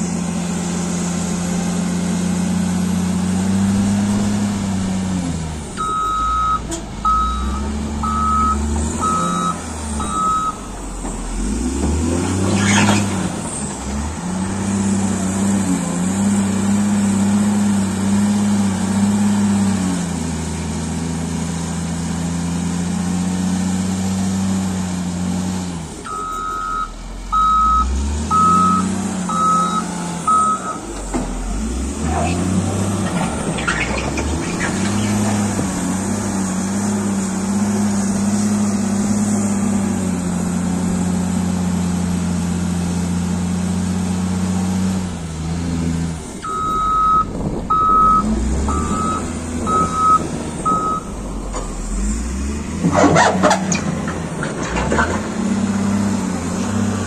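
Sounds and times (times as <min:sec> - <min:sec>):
diesel engine revving: 0:00.0 - 0:57.0
reversing alarm beeps: 0:05.8 - 0:10.7, 0:26.1 - 0:30.8, 0:46.4 - 0:51.1.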